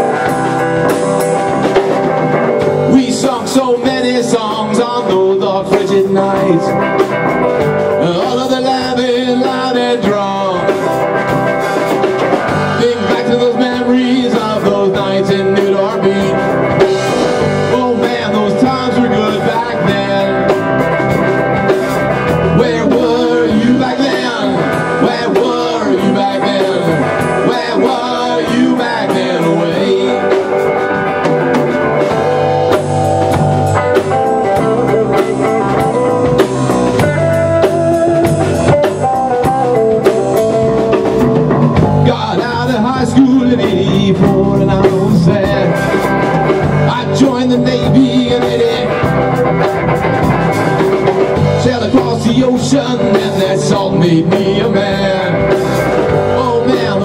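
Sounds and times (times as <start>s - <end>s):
drum kit beat: 0.0s - 57.0s
loud electric guitars: 0.0s - 57.0s.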